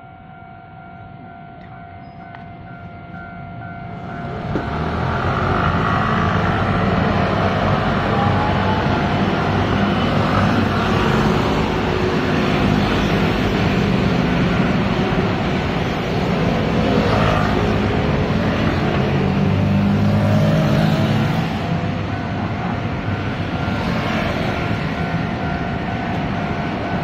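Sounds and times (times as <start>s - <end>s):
cars driving past: 4.2s - 27.0s
motor scooters passing: 4.4s - 25.0s.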